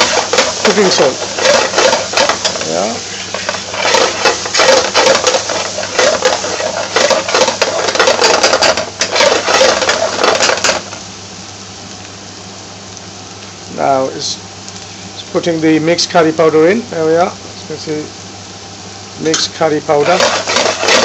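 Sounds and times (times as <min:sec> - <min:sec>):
metal spoon scraping frying pan: 0:00.0 - 0:10.9, 0:19.3 - 0:21.0
vegetables sizzling in oil: 0:00.0 - 0:21.0.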